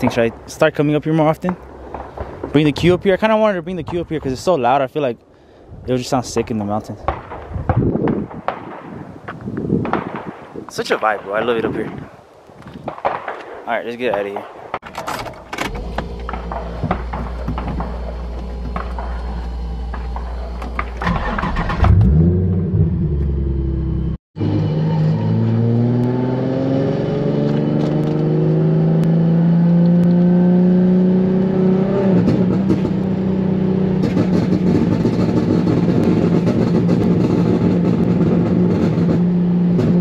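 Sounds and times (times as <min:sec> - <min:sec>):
car engine idling and revving: 0:14.9 - 0:40.0
car engine accelerating: 0:15.6 - 0:40.0.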